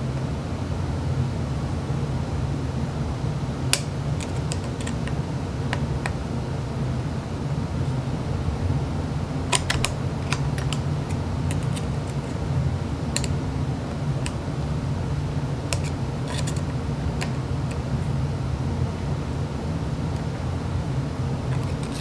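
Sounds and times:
steady low hum: 0.0 - 22.0
screwdriver clicking on metal: 3.7 - 6.2, 9.5 - 12.4, 13.2 - 13.4, 15.7 - 17.8.

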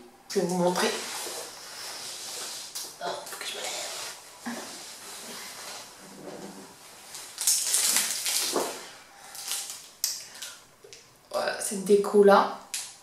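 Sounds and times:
plastic bag crinkling: 7.0 - 10.6.

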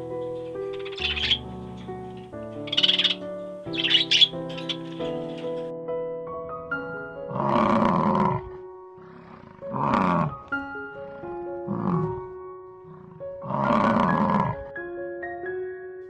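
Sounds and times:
background music: 0.0 - 16.0
water buffalo calling: 0.7 - 1.5, 2.6 - 5.4, 7.3 - 10.5, 11.7 - 14.7.

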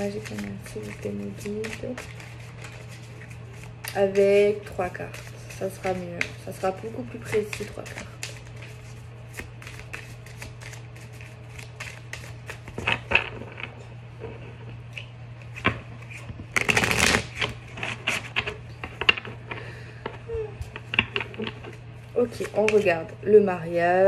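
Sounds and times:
cards being shuffled: 0.0 - 23.0
steady low hum: 0.0 - 24.0.

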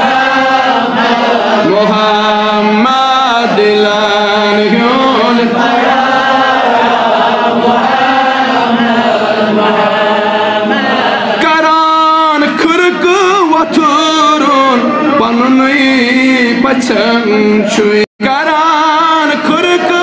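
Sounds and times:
man chanting devotional song: 0.9 - 5.8, 10.6 - 20.0.

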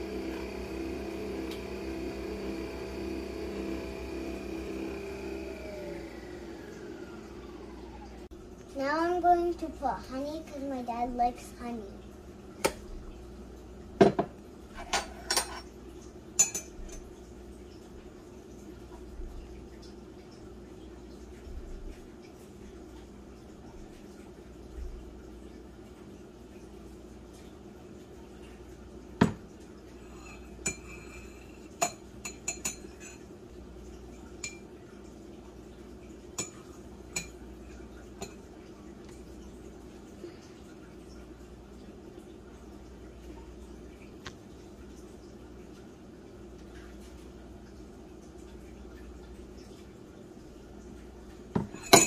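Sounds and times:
low hum: 0.0 - 8.7.

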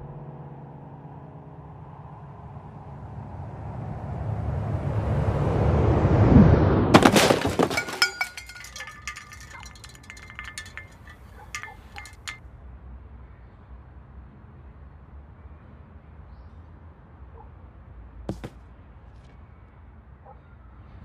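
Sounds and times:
glass shards tinkling: 7.0 - 12.4
glass shattering: 7.0 - 12.4.

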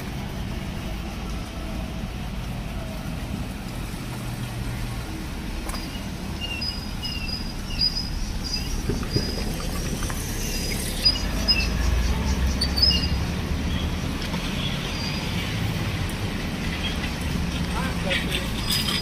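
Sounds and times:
city traffic rumble: 0.0 - 19.0
small birds chirping: 5.7 - 15.6.

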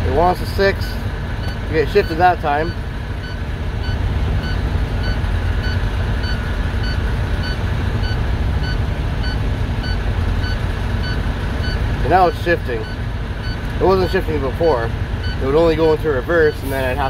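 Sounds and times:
diesel engine idling: 0.0 - 17.0
back-up alarm beeping: 1.4 - 13.6, 15.2 - 15.5.

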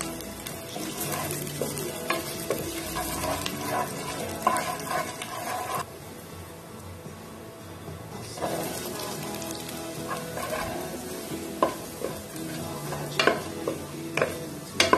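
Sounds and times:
spatula stirring and scraping: 0.0 - 5.9, 8.4 - 14.9
spices sizzling in hot oil: 0.0 - 6.8, 8.2 - 14.9.

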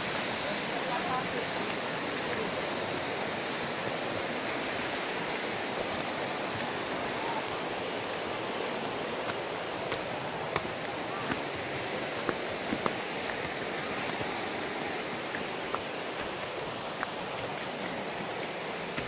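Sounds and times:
mountain stream flowing: 0.0 - 19.0
footsteps on leafy dirt trail: 8.6 - 19.0.

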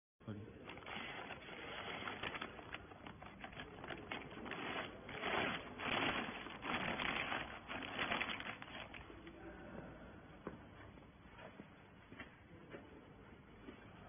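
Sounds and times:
plastic bag crinkling: 0.6 - 9.3.

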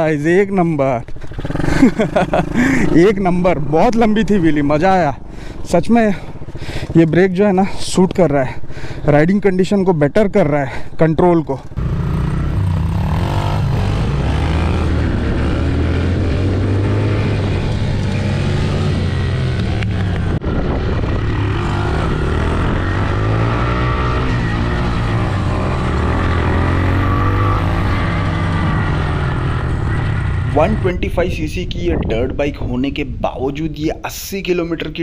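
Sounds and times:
dirt bike engine revving: 1.2 - 3.2, 11.8 - 30.9.

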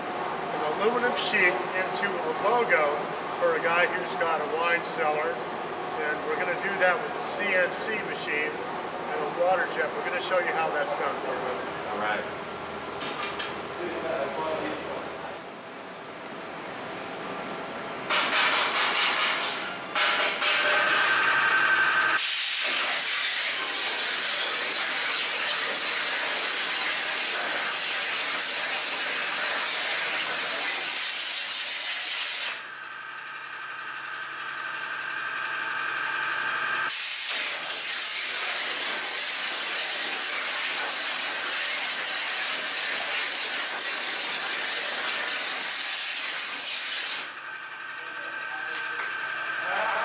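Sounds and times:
machine hum with steady tone: 0.0 - 50.0
water jet hissing: 22.2 - 32.5.

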